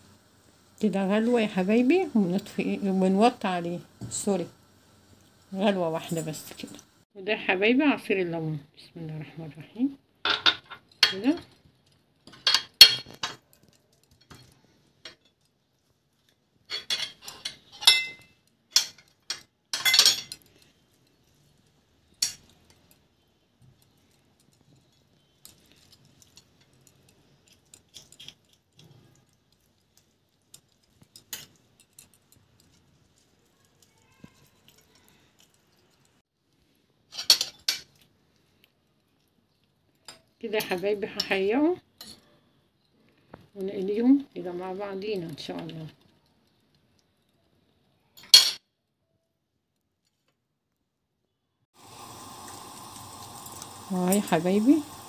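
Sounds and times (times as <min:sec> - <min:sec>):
cutlery scraping a ceramic plate: 0:16.7 - 0:20.5, 0:37.1 - 0:38.0.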